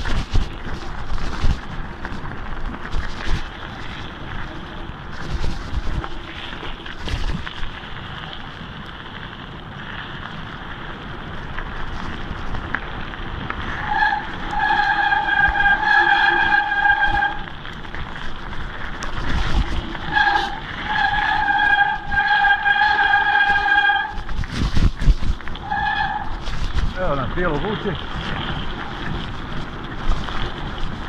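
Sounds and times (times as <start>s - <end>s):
wind on microphone: 0.0s - 7.8s, 11.7s - 31.0s
tyres crunching on gravel: 0.0s - 31.0s
disc brakes squealing: 13.7s - 17.5s.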